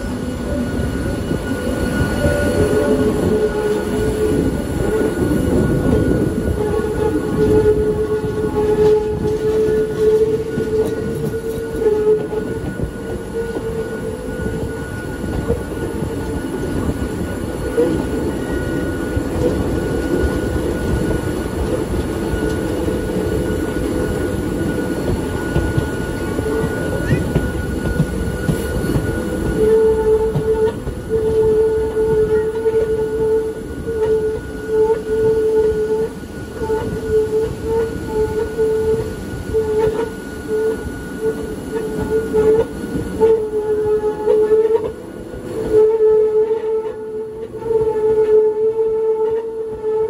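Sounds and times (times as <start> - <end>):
wheel squeal: 0.0 - 44.9
wheels rumbling on rail: 0.0 - 50.0.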